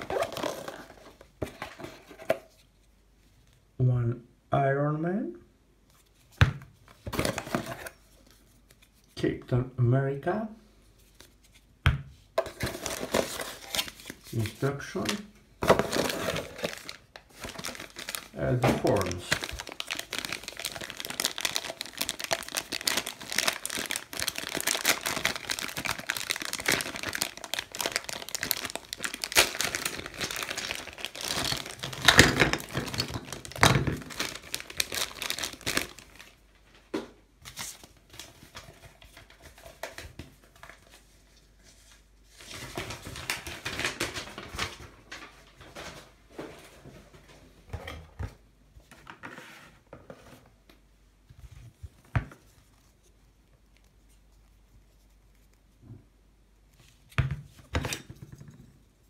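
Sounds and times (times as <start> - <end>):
plastic bag crinkling: 12.7 - 36.4.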